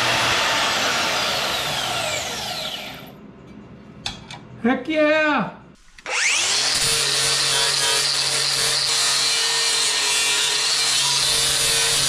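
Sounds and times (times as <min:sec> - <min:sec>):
power tool motor spinning: 0:06.0 - 0:07.4.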